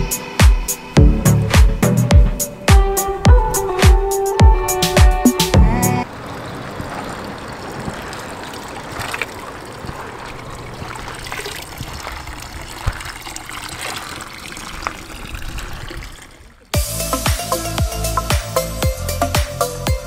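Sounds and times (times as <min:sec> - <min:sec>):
water trickling into metal trough: 0:06.0 - 0:16.8
hand splashing water: 0:06.1 - 0:16.7.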